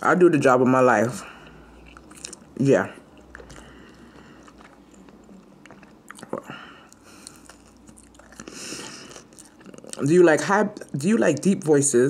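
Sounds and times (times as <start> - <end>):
person chewing wetly: 1.1 - 10.1.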